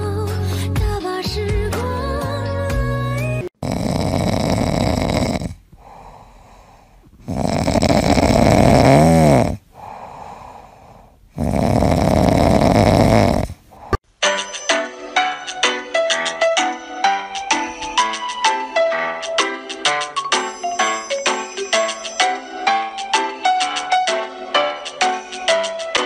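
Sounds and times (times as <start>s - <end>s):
cat snoring: 3.5s - 14.0s
cat breathing: 3.6s - 14.0s.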